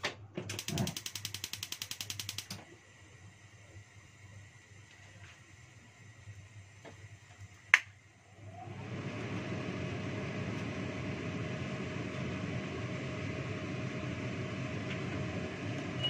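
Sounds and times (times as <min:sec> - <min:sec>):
sharp loud click: 0:00.5 - 0:02.6.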